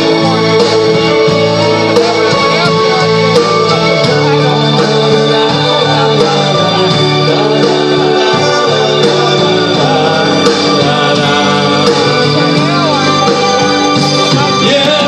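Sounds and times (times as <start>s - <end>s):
drum kit: 0.0s - 15.0s
electric guitar: 0.0s - 15.0s
keyboards: 0.0s - 15.0s.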